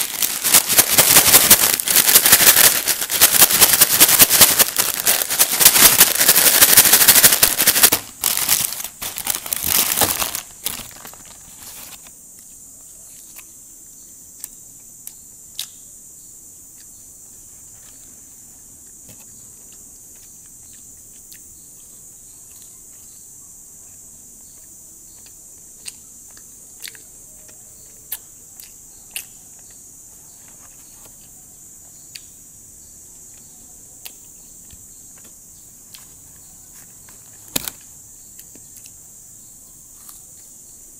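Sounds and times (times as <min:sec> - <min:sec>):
paper bag rustling crinkle: 0:00.0 - 0:12.1, 0:36.8 - 0:37.8
steady high hiss: 0:00.0 - 0:40.9
faint scattered ticks: 0:10.4 - 0:40.9.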